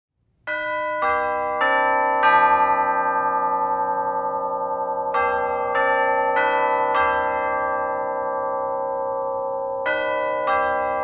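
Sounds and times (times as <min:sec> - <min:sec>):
chime bells playing melody: 0:09.4 - 0:11.0.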